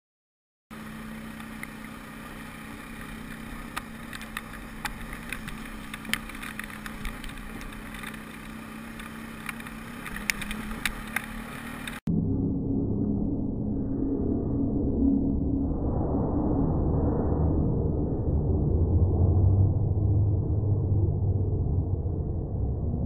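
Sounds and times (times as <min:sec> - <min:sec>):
atv engine running: 0:00.7 - 0:12.1
sharp clicks and knocks: 0:03.0 - 0:12.0.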